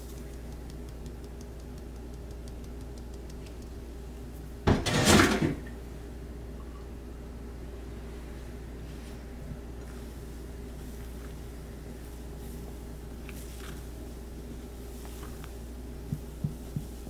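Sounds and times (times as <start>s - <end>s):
mesh sieve ticking: 0.0s - 3.8s.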